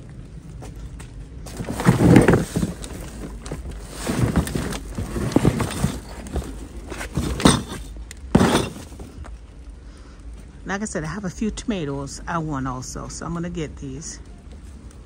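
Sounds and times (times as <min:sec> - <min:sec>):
footsteps: 0:00.5 - 0:09.4
knocking: 0:01.6 - 0:09.1.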